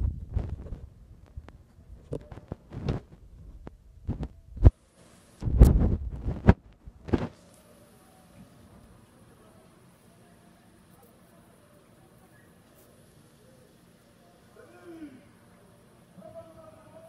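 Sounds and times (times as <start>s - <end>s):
faint high hiss: 4.1s - 17.0s.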